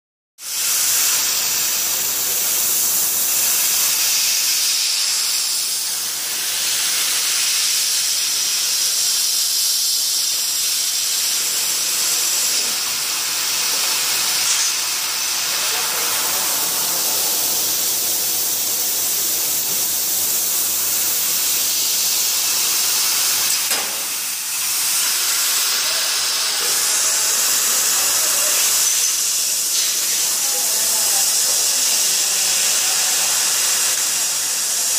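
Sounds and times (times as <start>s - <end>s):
laser cutter gas jet hissing: 0.4s - 34.9s.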